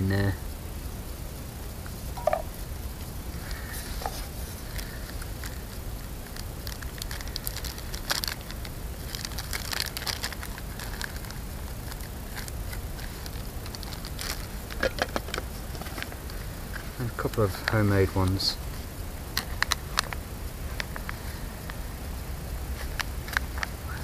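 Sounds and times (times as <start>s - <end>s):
steady low rumble: 0.0s - 24.0s
plastic bag crinkling: 3.4s - 18.4s, 19.4s - 21.2s.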